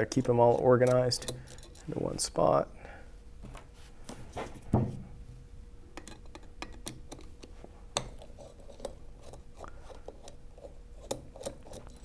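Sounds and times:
screwdriver clicking and scraping: 0.5s - 1.9s, 6.0s - 9.4s, 10.0s - 12.0s
dull knock: 4.7s - 5.0s.

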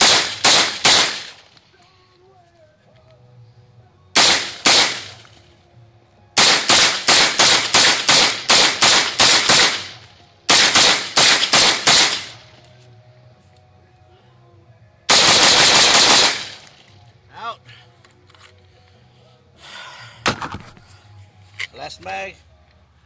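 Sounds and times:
rifle shots echoing: 0.0s - 1.5s, 4.2s - 5.3s, 6.4s - 12.5s, 15.1s - 16.8s.

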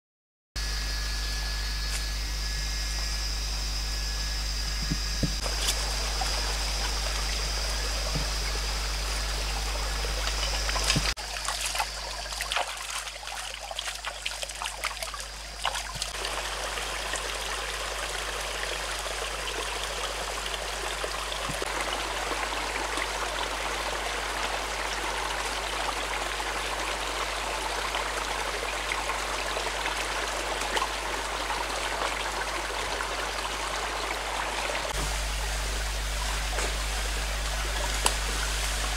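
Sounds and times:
steady hiss with high tone: 0.6s - 12.2s, 34.9s - 38.9s
stream splashing over stones: 4.8s - 38.9s.

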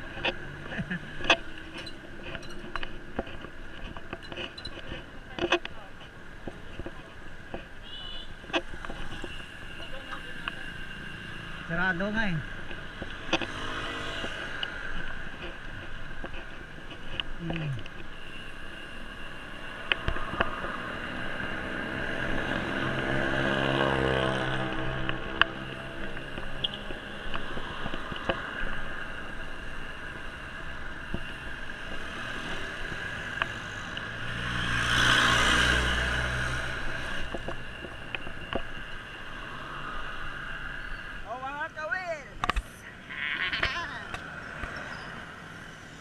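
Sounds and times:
road and wind noise: 0.0s - 46.0s
vehicles passing: 0.0s - 46.0s.

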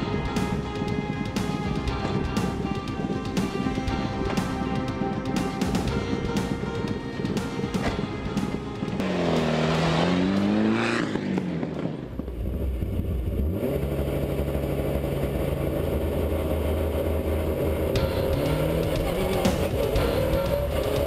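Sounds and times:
car engine revving and idling: 7.4s - 21.0s.

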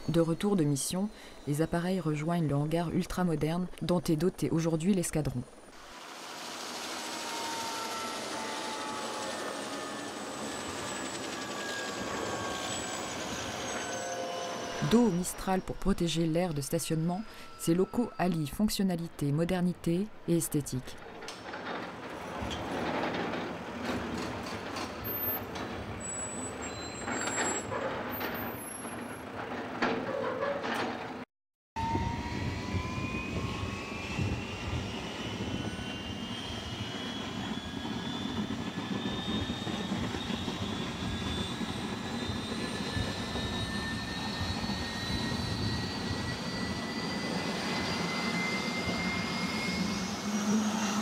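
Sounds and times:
helicopter turbine whine rising: 0.0s - 21.3s, 31.8s - 51.0s.

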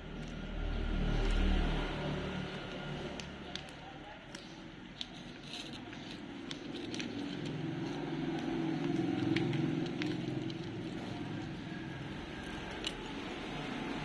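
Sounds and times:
cat chewing and licking: 2.7s - 14.0s.

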